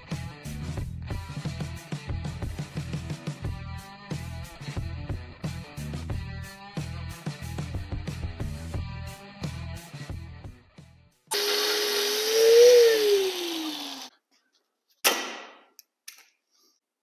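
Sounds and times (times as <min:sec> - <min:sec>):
angle grinder cutting steel: 0:11.3 - 0:14.1
sharp knock: 0:15.0 - 0:15.7.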